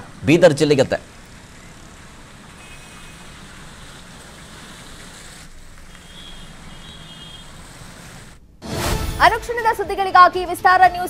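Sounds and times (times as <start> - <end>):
vehicles driving through water: 0.0 - 8.4.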